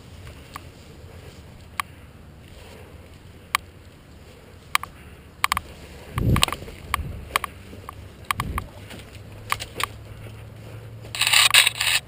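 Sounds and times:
low thumps of movement: 4.6s - 11.1s
scraping rustle: 5.6s - 12.0s
airsoft gunfire clicks: 11.2s - 12.0s.

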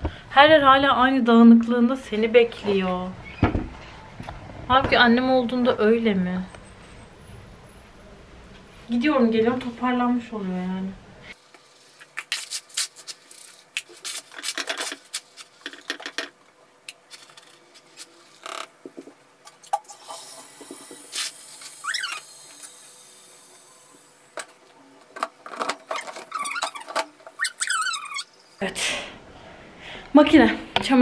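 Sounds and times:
high squeak: 21.8s - 22.4s, 25.9s - 28.4s.

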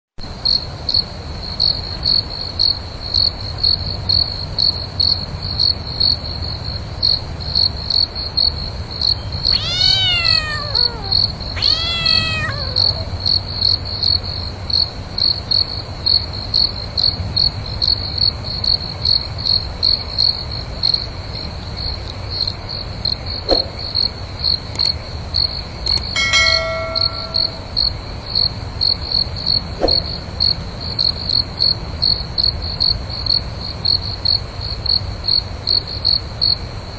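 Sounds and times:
crickets chirping: 0.3s - 36.9s
cat meowing: 9.5s - 13.2s, 26.2s - 27.6s.

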